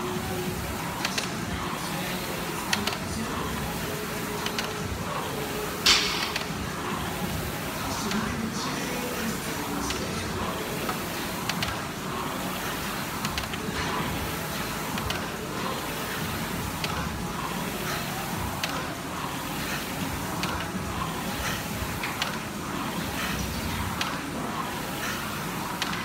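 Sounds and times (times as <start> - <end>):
rowing machine flywheel whirring: 0.0 - 26.0
rowing machine click: 0.5 - 3.6, 4.3 - 4.9, 5.7 - 26.0.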